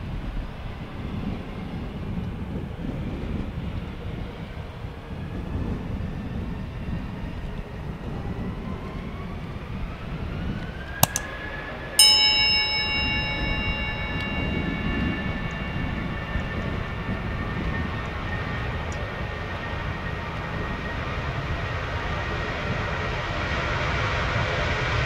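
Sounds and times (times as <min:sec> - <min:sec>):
jet engine rumble and whine: 0:00.0 - 0:11.0, 0:15.5 - 0:25.0
bell-like metallic ring: 0:11.0 - 0:11.2, 0:12.0 - 0:18.8
sharp click: 0:11.0 - 0:11.3.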